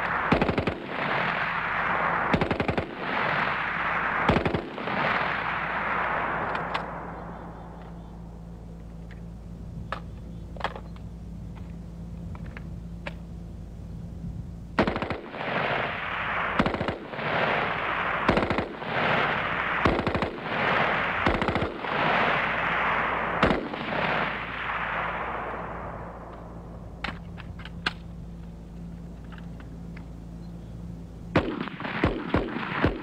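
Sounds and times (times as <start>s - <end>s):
rifle gunfire: 0.0s - 8.6s, 14.8s - 27.3s, 31.3s - 33.0s.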